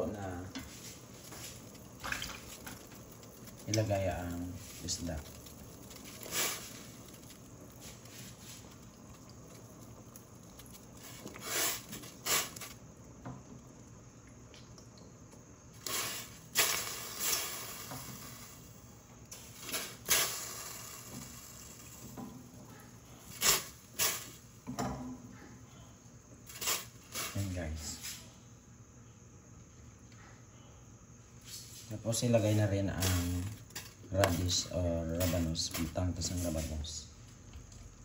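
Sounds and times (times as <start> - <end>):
broth bubbling: 0.5 - 15.2
fish splashing into water: 1.9 - 2.9.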